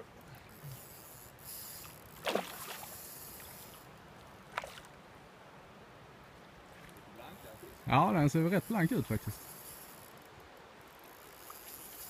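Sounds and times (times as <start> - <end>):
water splash: 2.2 - 2.9.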